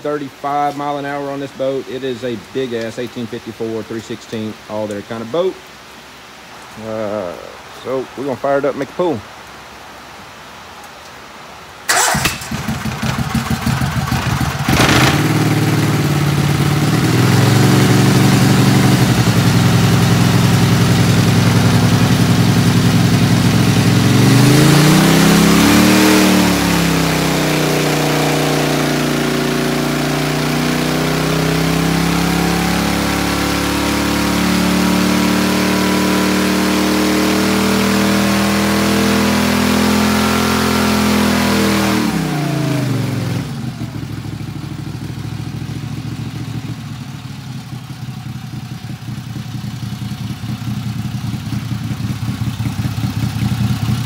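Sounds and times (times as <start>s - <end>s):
engine idling: 11.9s - 24.2s, 43.8s - 54.0s
engine running wide open: 11.9s - 54.0s.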